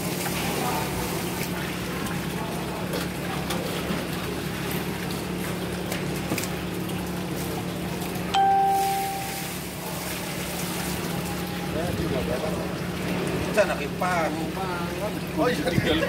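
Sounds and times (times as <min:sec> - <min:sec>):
water trickling: 0:04.0 - 0:16.0
metal basin ringing: 0:08.4 - 0:09.8.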